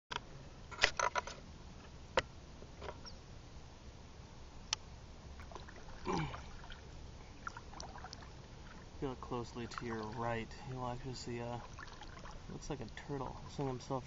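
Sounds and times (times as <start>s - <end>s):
watery paddle sound: 5.3s - 14.0s.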